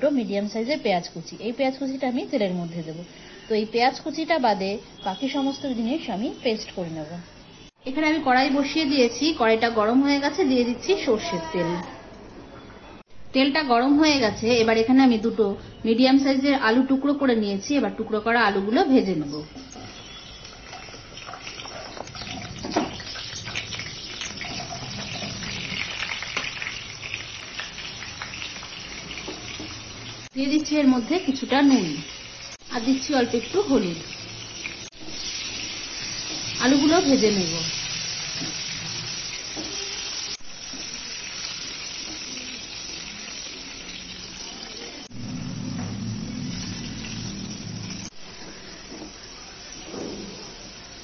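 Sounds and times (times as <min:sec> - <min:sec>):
oil sizzling: 0:13.9 - 0:51.0.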